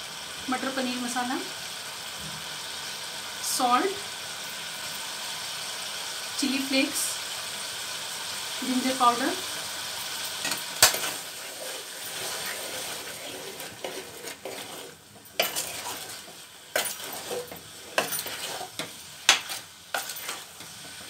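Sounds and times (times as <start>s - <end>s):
food sizzling in a pot: 0.0s - 21.0s
spoon scraping and knocking pot: 10.4s - 21.0s.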